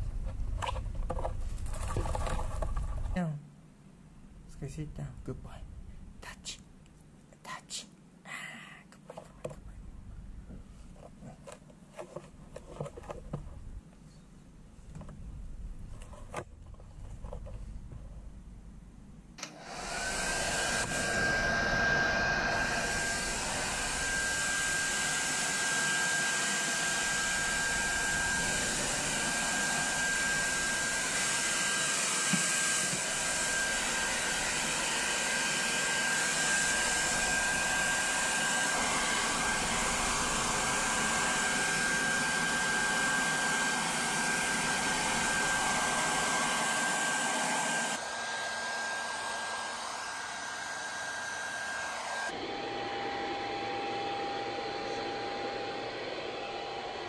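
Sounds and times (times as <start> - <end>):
hair dryer blowing: 19.4 - 57.0.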